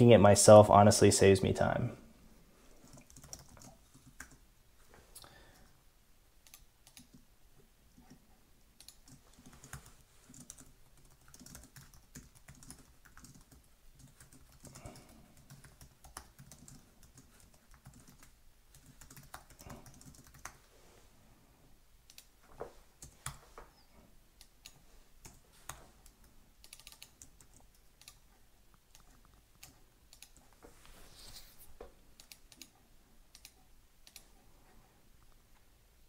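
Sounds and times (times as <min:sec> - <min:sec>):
typing on computer keyboard: 0:02.8 - 0:04.4, 0:06.4 - 0:07.2, 0:08.8 - 0:20.6, 0:22.1 - 0:22.3, 0:24.4 - 0:28.2, 0:28.9 - 0:30.4, 0:32.2 - 0:34.3.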